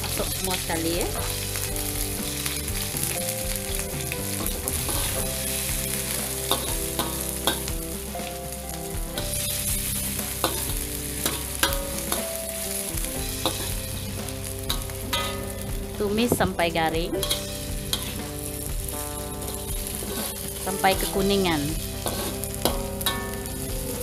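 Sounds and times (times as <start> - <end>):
paste sizzling in hot oil: 0.0 - 16.4, 17.2 - 24.0
metal ladle scraping wok: 4.3 - 7.8, 9.2 - 16.4, 17.2 - 24.0.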